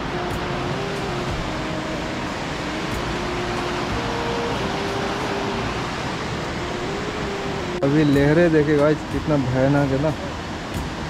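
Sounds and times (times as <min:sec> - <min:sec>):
faint melody of held notes: 0:00.0 - 0:10.3
turbulent river water rushing: 0:00.0 - 0:11.0.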